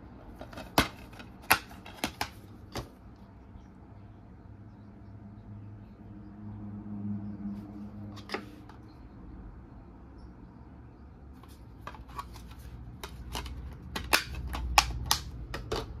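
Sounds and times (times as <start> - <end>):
plastic case being handled: 0.2 - 3.0
sharp plastic clicks: 11.8 - 16.0.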